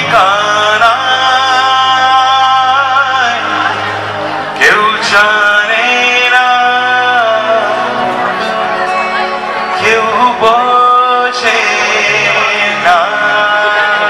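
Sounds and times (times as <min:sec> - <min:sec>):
man singing into microphone: 0:00.0 - 0:08.8, 0:09.4 - 0:14.0
instrumental accompaniment: 0:00.0 - 0:14.0.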